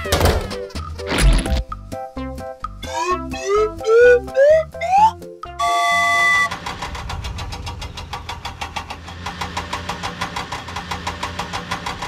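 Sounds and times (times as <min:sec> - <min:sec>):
toy engine idling chug: 0:05.6 - 0:12.0.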